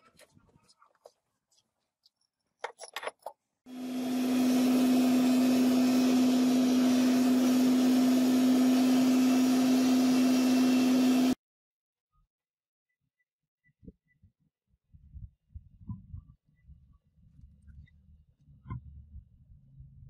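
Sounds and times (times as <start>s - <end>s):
furnace blower whirring: 3.7s - 11.4s.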